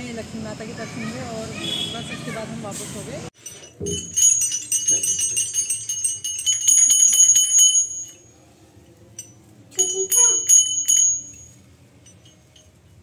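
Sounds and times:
brass hand bell ringing: 0:03.4 - 0:08.2, 0:09.2 - 0:12.7.

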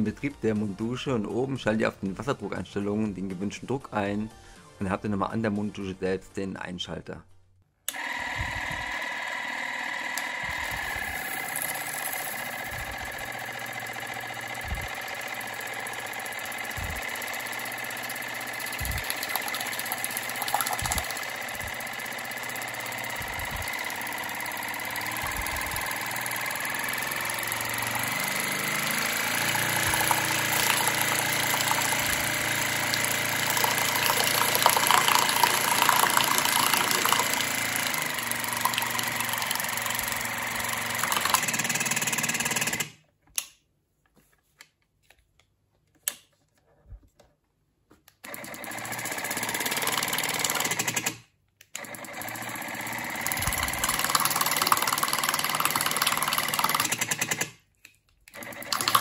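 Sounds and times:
water flosser pump buzzing: 0:07.9 - 0:42.9, 0:48.2 - 0:51.1, 0:51.8 - 0:57.4, 0:58.3 - 0:59.0.

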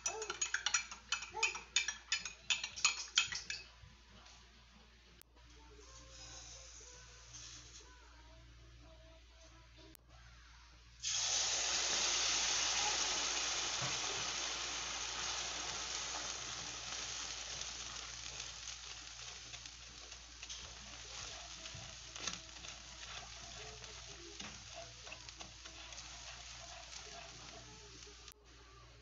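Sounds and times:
liquid sizzling in hot wok: 0:06.1 - 0:07.9, 0:10.6 - 0:28.4
spatula scraping pan: 0:15.3 - 0:28.4.

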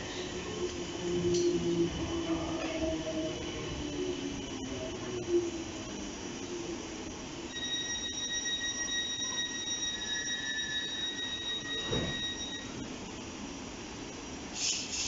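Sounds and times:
train door warning tone: 0:07.5 - 0:12.9
train doors thudding shut: 0:11.8 - 0:12.3.

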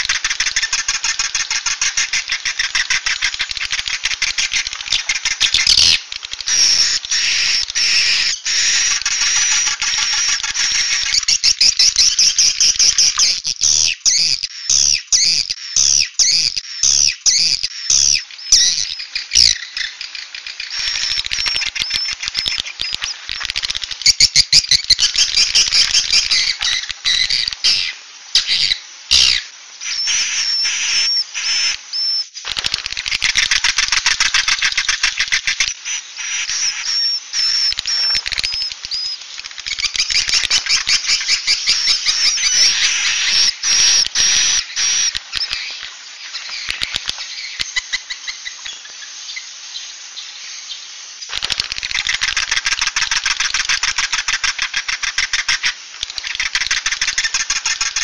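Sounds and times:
swiftlet clicking chatter: 0:00.0 - 0:07.8, 0:08.7 - 0:11.4, 0:36.4 - 0:48.6, 0:51.3 - 0:58.0.

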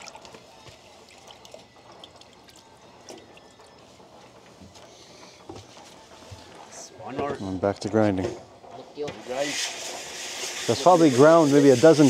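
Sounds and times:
water dripping and trickling: 0:00.0 - 0:03.8.

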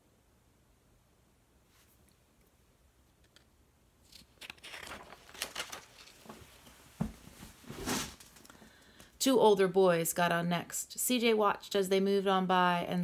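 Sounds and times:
paper rustling and crinkling: 0:04.0 - 0:08.5
page swishing: 0:04.1 - 0:06.7, 0:07.3 - 0:08.4.

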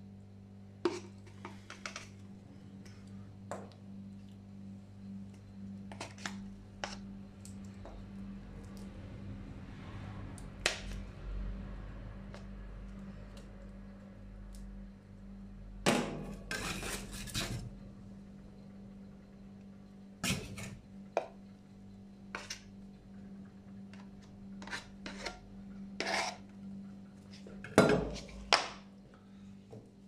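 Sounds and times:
steady low hum: 0:00.0 - 0:30.0
spatulas scraping on metal plate: 0:16.3 - 0:17.7, 0:24.6 - 0:25.4, 0:26.0 - 0:26.4.

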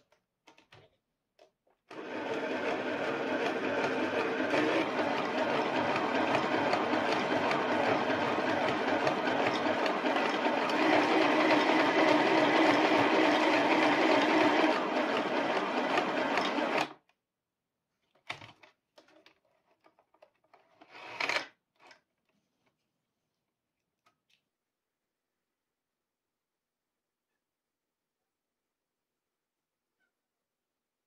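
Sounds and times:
sewing machine stitching fabric: 0:01.9 - 0:17.0.

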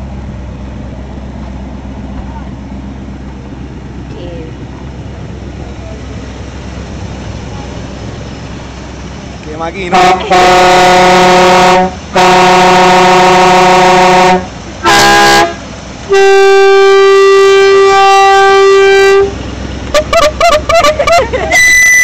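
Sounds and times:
car horns blowing: 0:09.9 - 0:22.0.

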